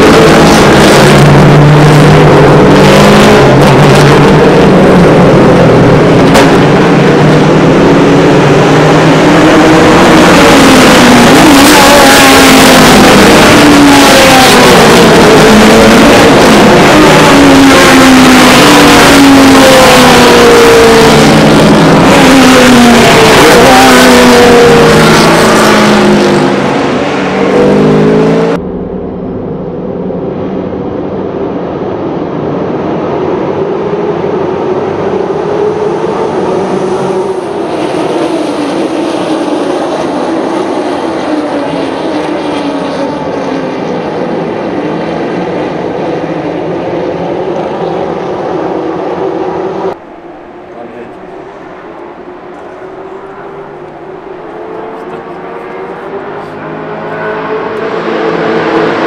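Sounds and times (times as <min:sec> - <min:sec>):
race cars passing: 0:00.0 - 0:59.0
steady engine drone: 0:00.0 - 0:59.0.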